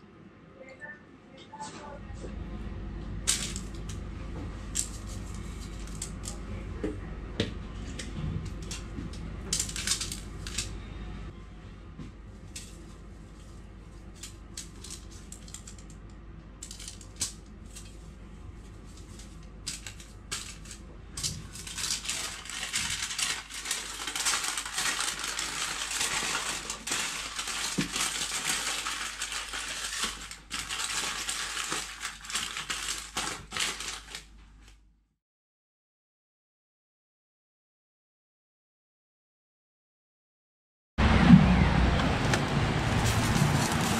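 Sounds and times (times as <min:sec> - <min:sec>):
aluminium foil crinkling: 0:04.7 - 0:06.4, 0:09.5 - 0:10.7, 0:12.4 - 0:16.0, 0:16.6 - 0:34.3, 0:42.2 - 0:43.9
paper towel rustling: 0:17.6 - 0:34.3, 0:42.1 - 0:43.9.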